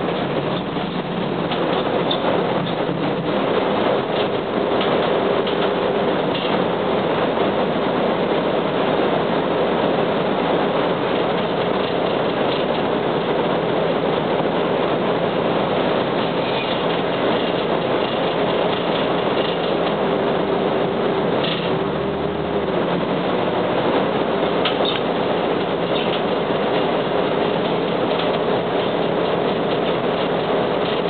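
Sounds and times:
diesel engine drone: 0:00.0 - 0:31.0
road noise: 0:00.0 - 0:31.0.

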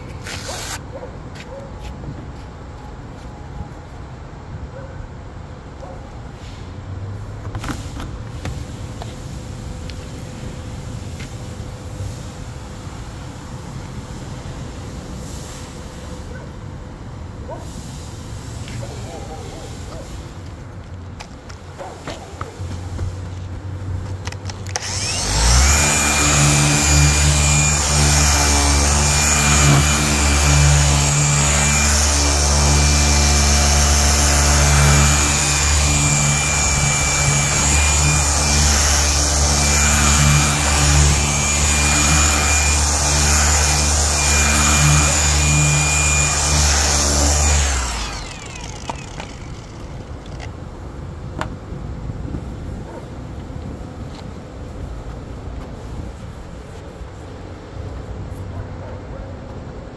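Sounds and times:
electric polisher whining: 0:00.0 - 0:00.8, 0:24.2 - 0:50.5.

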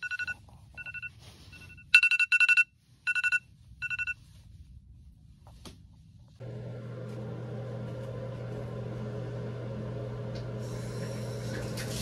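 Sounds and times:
phone alarm beeping: 0:00.0 - 0:04.2.

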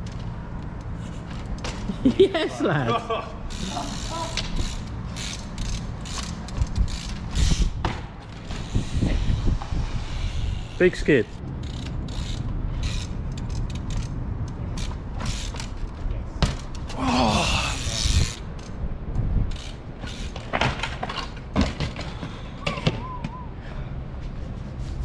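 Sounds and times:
bike chain snapping: 0:03.5 - 0:07.8, 0:11.6 - 0:15.9
bike crashing on pavement: 0:20.4 - 0:23.0.

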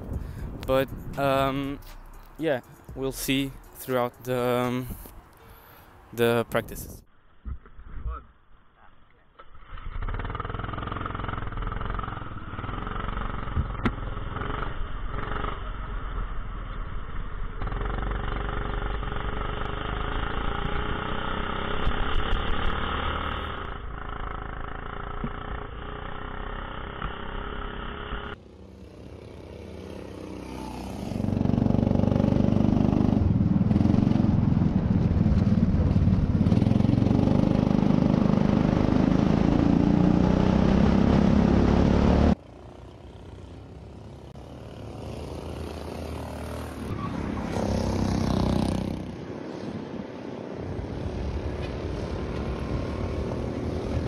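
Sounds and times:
go-kart engine running: 0:09.6 - 0:49.2.

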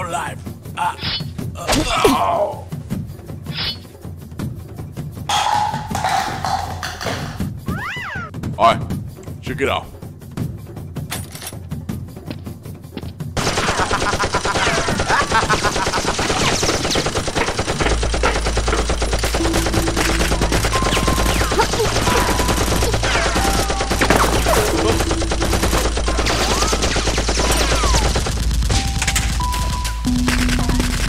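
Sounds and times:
automatic gunfire: 0:13.4 - 0:31.0.

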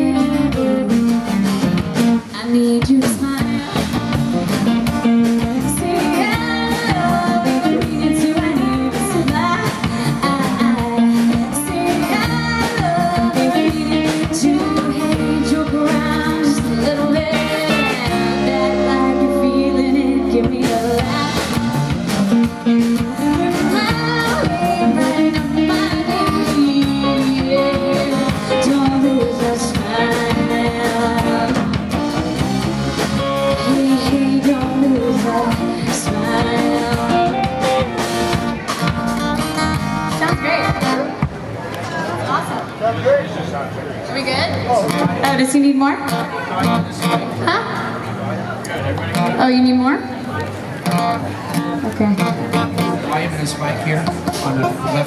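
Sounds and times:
woman singing: 0:00.0 - 0:01.2, 0:02.3 - 0:04.0, 0:05.4 - 0:21.7, 0:23.3 - 0:31.8, 0:33.4 - 0:37.8
electric bass: 0:00.0 - 0:42.5, 0:44.2 - 0:55.0
acoustic guitar: 0:00.0 - 0:42.8, 0:44.3 - 0:55.0
electric guitar: 0:00.0 - 0:42.8, 0:44.2 - 0:55.0.

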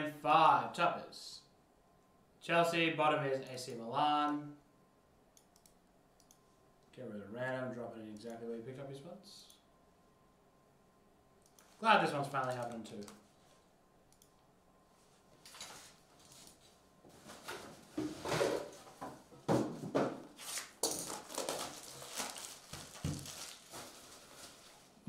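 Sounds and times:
plastic film tearing and crinkling: 0:20.4 - 0:24.8.

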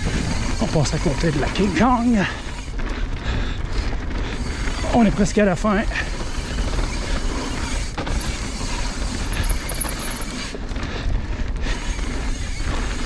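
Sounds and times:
wind rumble on microphone: 0:00.0 - 0:09.2, 0:10.5 - 0:13.0
bike tyres rolling over dirt: 0:00.5 - 0:13.0
bike chain and frame rattling: 0:04.0 - 0:10.6.

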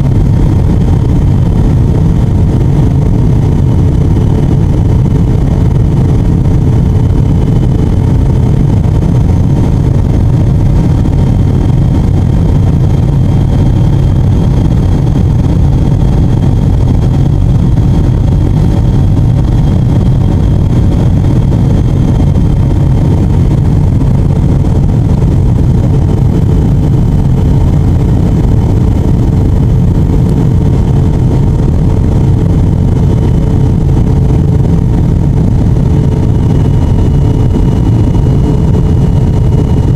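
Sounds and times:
aircraft engines and rushing air: 0:00.0 - 0:39.9.

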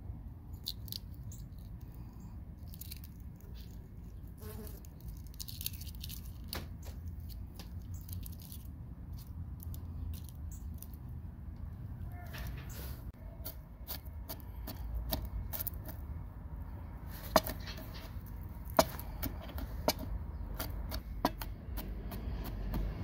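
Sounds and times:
steady low rumble: 0:07.0 - 0:23.0.

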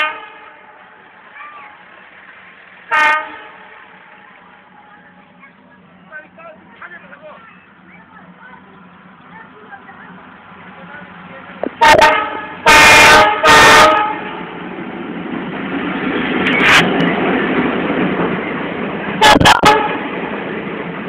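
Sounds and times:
locomotive air horn: 0:00.0 - 0:00.8, 0:02.9 - 0:03.9, 0:11.8 - 0:14.3, 0:19.2 - 0:20.0
train rumbling past: 0:00.0 - 0:21.0.

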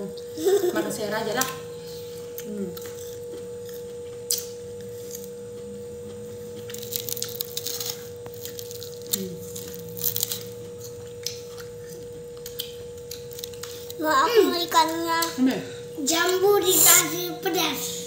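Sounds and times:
high-pitched hum: 0:00.0 - 0:18.0
fingers tearing food: 0:06.6 - 0:14.0.

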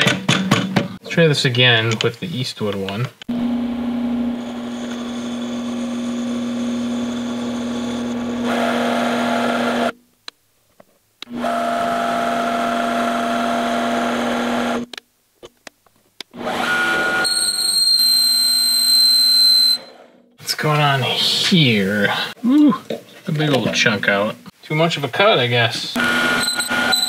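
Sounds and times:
lathe motor hum: 0:03.3 - 0:09.9, 0:11.3 - 0:14.8.

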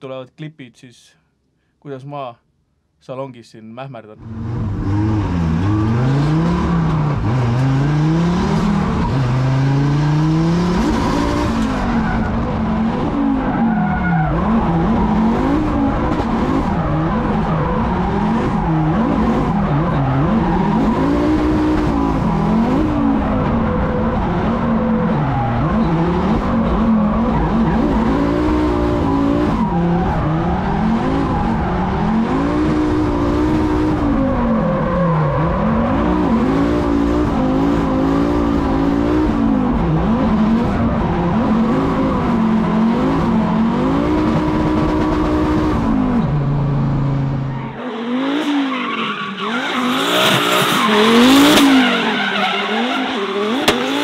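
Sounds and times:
car engine revving: 0:04.2 - 0:54.0
tyres squealing: 0:48.6 - 0:53.8.

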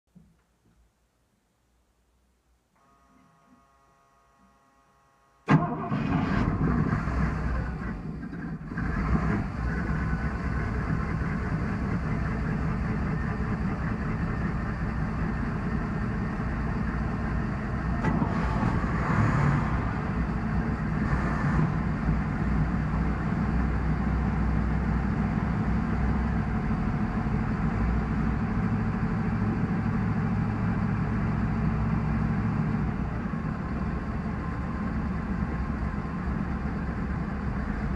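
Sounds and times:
boat engine starting and idling: 0:05.5 - 0:37.9.

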